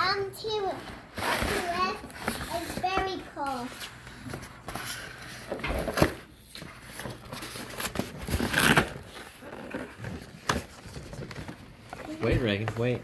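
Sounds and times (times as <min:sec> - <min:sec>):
cardboard packaging rustling: 0:01.1 - 0:13.0
cardboard ripping: 0:07.0 - 0:11.7.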